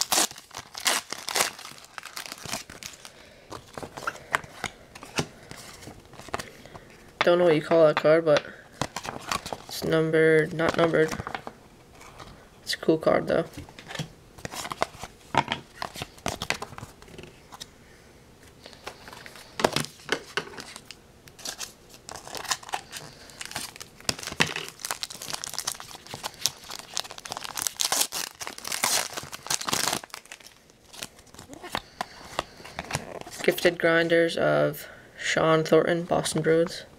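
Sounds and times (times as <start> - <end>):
foil wrapper crinkling: 0.0 - 6.5, 8.7 - 9.8, 20.6 - 33.6
cards being handled: 0.0 - 7.0, 13.5 - 15.2.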